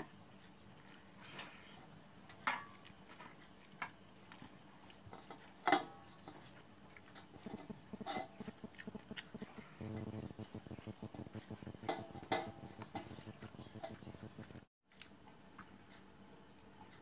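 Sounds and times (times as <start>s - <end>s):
soft quick ticking: 7.5s - 14.7s
clicks and taps on steel plate: 10.1s - 14.1s.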